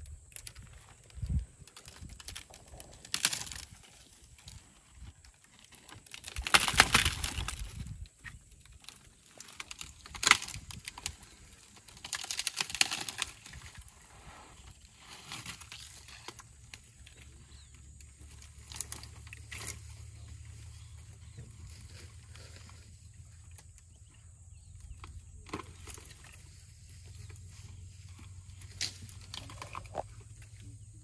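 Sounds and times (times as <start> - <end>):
twigs crackling and snapping: 0.0 - 30.8
leafy branches rustling: 0.4 - 23.6.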